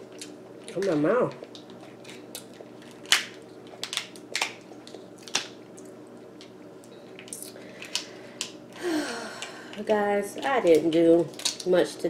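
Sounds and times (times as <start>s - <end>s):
lobster shell cracking: 0.0s - 6.6s, 9.4s - 11.7s.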